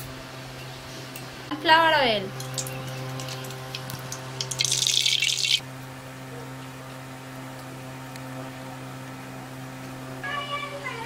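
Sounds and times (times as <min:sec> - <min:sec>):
steady low hum: 0:00.0 - 0:11.0
oil pouring into metal pan: 0:02.5 - 0:05.6.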